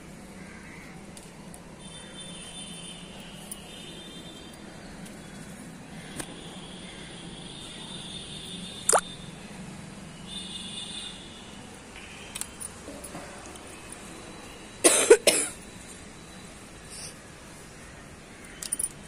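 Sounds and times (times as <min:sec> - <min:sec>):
person coughing: 0:14.8 - 0:15.6.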